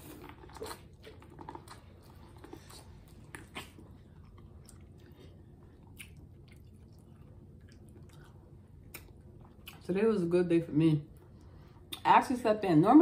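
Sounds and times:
chewing close to microphone: 0.0s - 9.9s.

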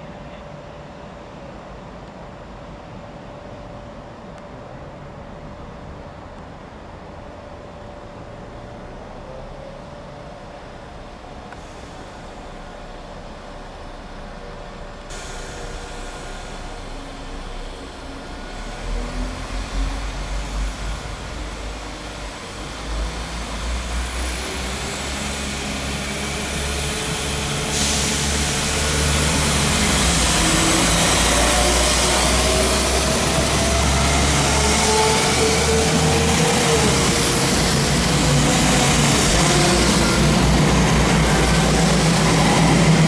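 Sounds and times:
diesel train engines: 0.0s - 43.0s
train wheels on rails: 9.6s - 43.0s.

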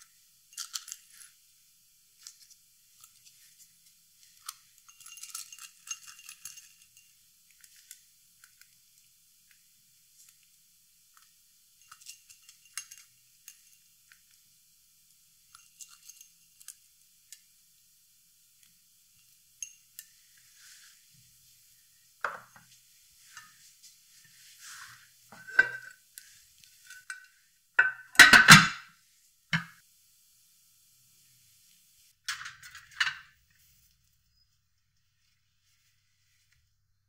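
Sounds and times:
glass dish handling: 22.2s - 22.6s, 25.3s - 25.9s, 27.8s - 28.9s
glass lid clattering on glass: 25.4s - 25.9s, 27.8s - 28.8s.

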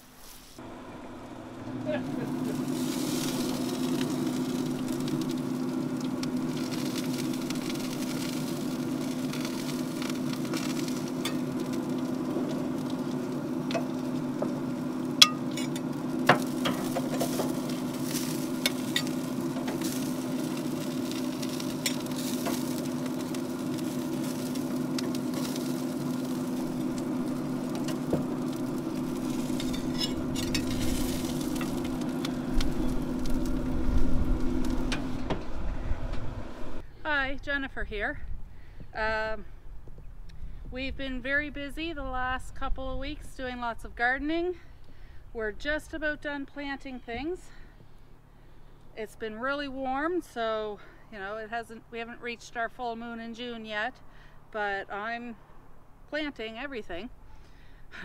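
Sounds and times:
burgers sizzling on a grate: 0.0s - 36.8s
steady hum: 0.6s - 52.1s
fork clinking on metal grate: 15.2s - 15.8s.

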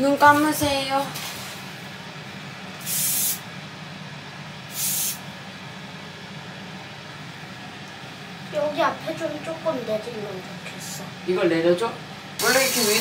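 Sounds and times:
steady low hum: 0.0s - 13.0s
aerosol spray bursts: 2.8s - 3.4s, 4.7s - 5.2s.

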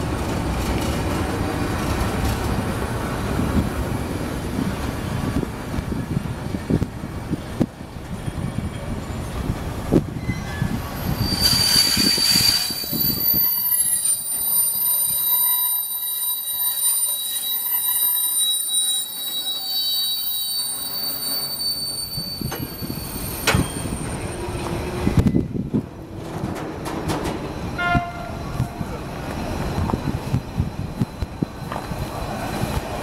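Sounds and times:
metallic squeal from wagons: 10.2s - 24.3s
freight train wheels clacking: 22.1s - 33.0s.

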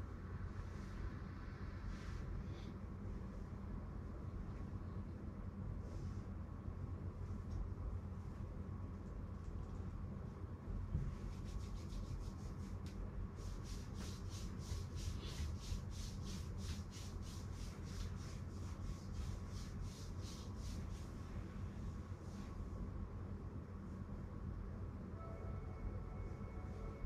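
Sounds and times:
steady low hum: 0.0s - 27.0s
hands rubbing skin and hair: 11.1s - 21.4s.

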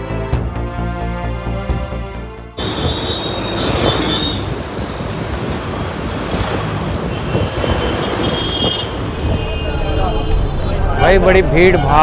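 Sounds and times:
heavy road traffic: 2.6s - 12.0s
vehicles passing close by: 2.6s - 12.0s.

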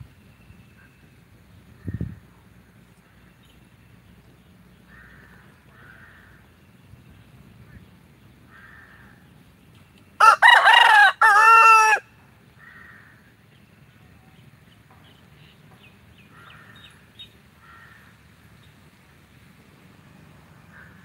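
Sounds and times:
faint bird calls and chirps: 0.0s - 10.2s, 12.6s - 18.9s
rooster crowing: 10.2s - 12.1s.

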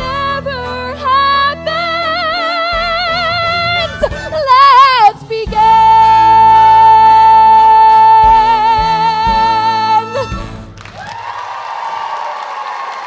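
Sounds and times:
woman belting a high note: 1.6s - 10.6s.

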